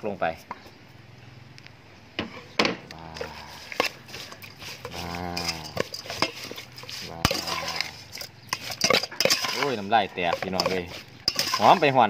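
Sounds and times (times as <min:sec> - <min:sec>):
metal spoon clinking in pot: 0:03.7 - 0:11.9.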